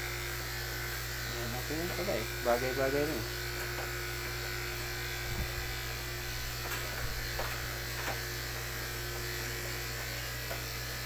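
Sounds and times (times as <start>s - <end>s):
electric clippers buzzing: 0.0s - 11.0s.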